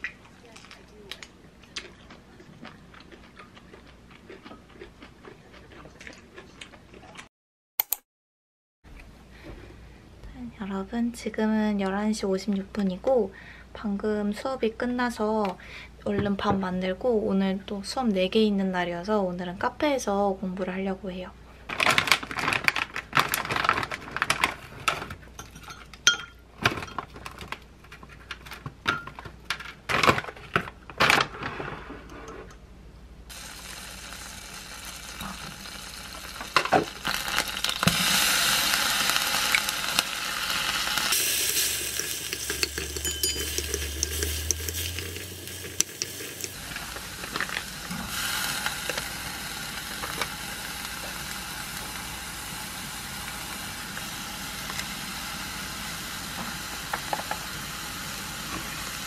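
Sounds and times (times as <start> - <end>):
plastic bag crinkling: 21.7 - 25.2, 38.7 - 51.4
food sizzling in a frying pan: 33.3 - 59.0
spoon stirring in a pan: 41.2 - 47.6.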